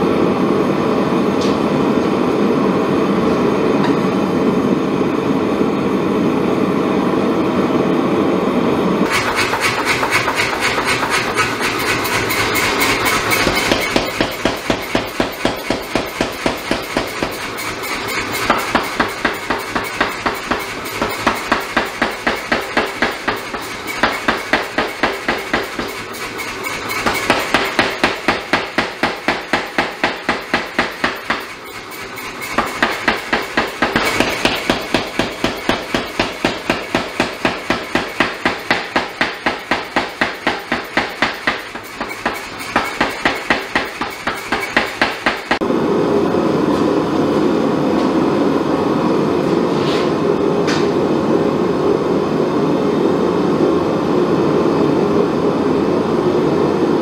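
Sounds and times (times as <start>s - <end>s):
gas forge burner rushing: 8.4s - 57.0s
power hammer pounding: 9.0s - 45.6s.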